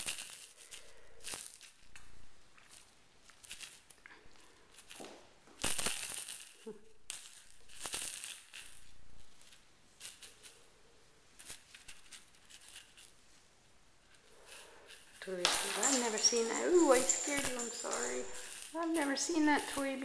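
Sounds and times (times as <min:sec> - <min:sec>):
kittens scuffling on wooden floor: 0:15.0 - 0:20.0.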